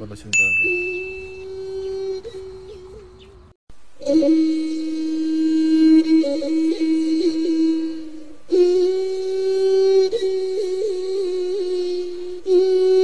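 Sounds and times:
wordless melodic line: 0:00.4 - 0:01.6.

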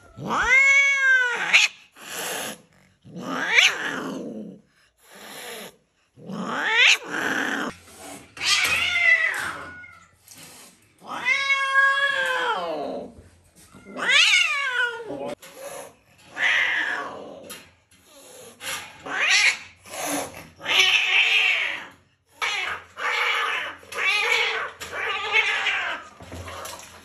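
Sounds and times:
cat yowling: 0:00.0 - 0:01.8, 0:13.8 - 0:15.2
cat hissing: 0:00.0 - 0:11.8.

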